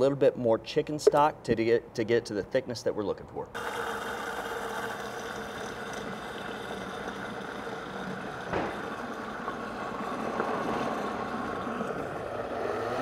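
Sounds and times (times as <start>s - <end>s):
blender motor running: 3.6s - 13.0s.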